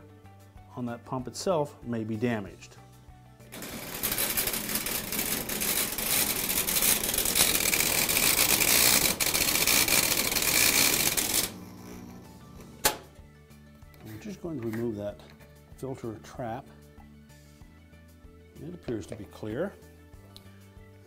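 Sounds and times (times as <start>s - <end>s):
drain pump rattling and grinding: 3.6s - 11.6s.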